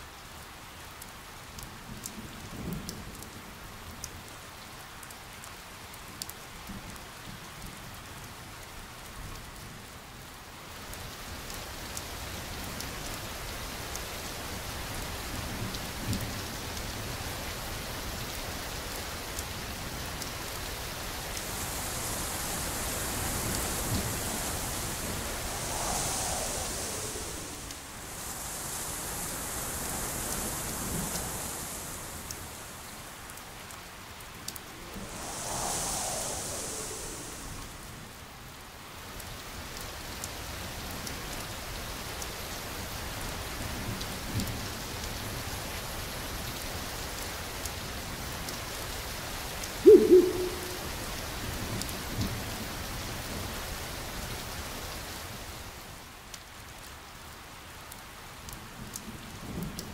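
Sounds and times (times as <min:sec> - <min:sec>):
steady rain: 0:00.0 - 0:59.9.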